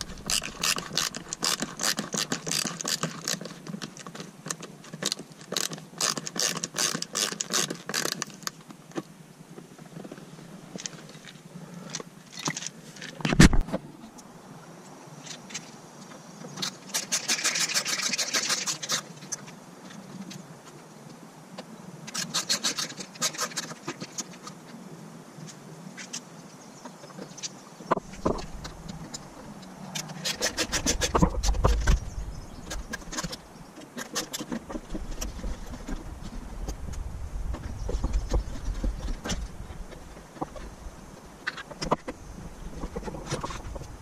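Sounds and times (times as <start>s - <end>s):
handling knocks and rubbing: 27.9s - 40.8s.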